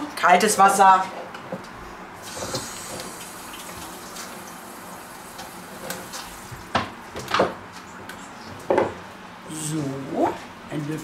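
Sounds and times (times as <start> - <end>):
water running from a tap: 2.2 - 6.8.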